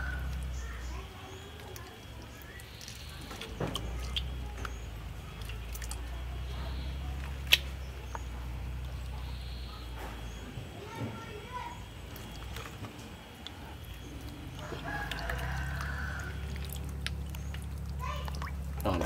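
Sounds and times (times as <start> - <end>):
low steady hum: 0.0 - 19.0
hands rubbing meat in water: 1.4 - 9.1, 12.0 - 19.0.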